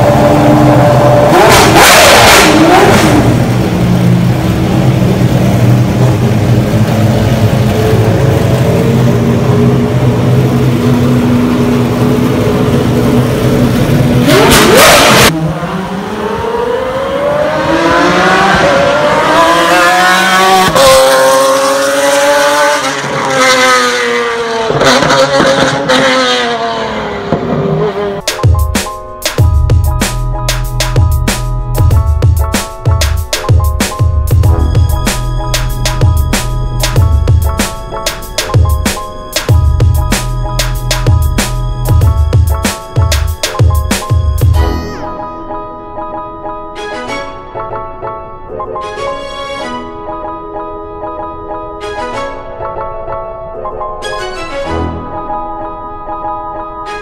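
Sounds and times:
car accelerating through gears: 0.0 - 28.2
car engine idling: 2.6 - 14.8.

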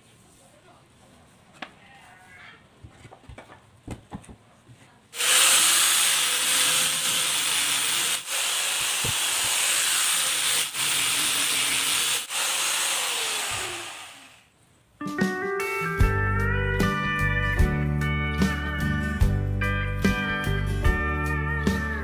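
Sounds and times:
angle grinder sanding wood: 5.2 - 14.4.

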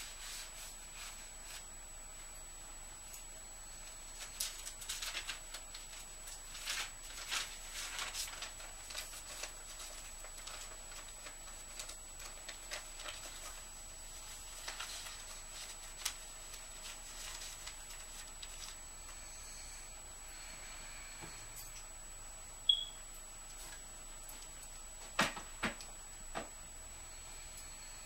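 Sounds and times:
paper rustling and crinkling: 4.1 - 18.8
faint high whine: 13.0 - 23.3, 26.8 - 28.0.

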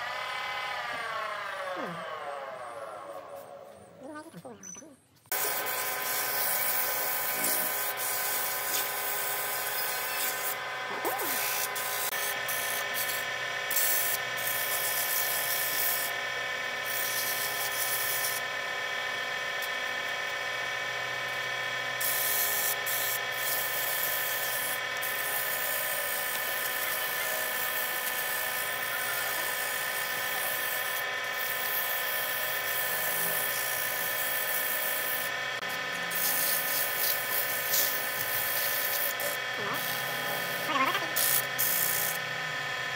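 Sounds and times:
wood lathe motor whine: 0.0 - 4.0, 5.3 - 42.9
sandpaper hissing on spinning wood: 5.3 - 16.2, 16.8 - 18.5, 22.0 - 42.2.

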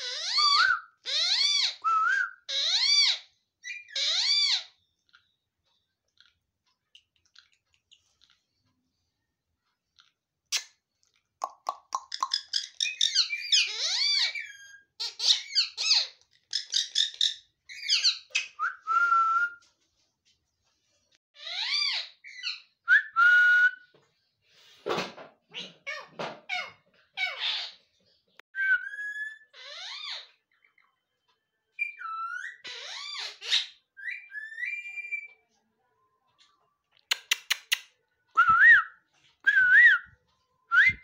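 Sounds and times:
parakeets whistling and chirping: 0.0 - 5.5, 12.0 - 19.7, 21.4 - 23.9, 28.6 - 31.0, 31.8 - 35.4.

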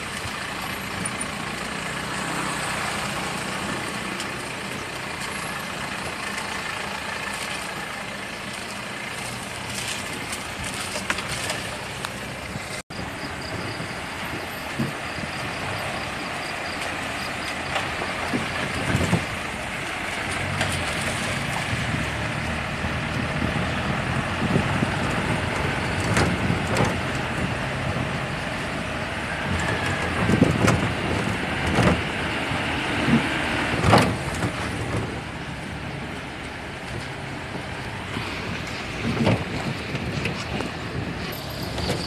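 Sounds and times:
engine and tyre rumble: 0.0 - 42.0
vehicle thumping over bumps: 33.0 - 35.4, 38.4 - 42.0.

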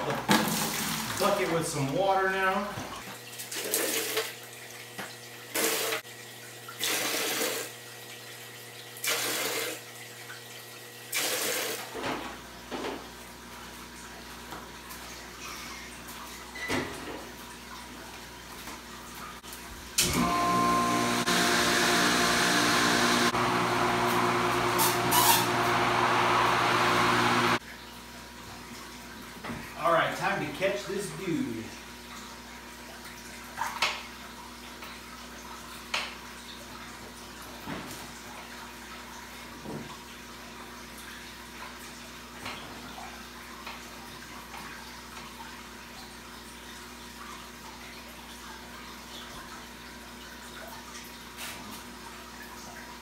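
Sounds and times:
tap water running into bucket: 0.0 - 25.5.

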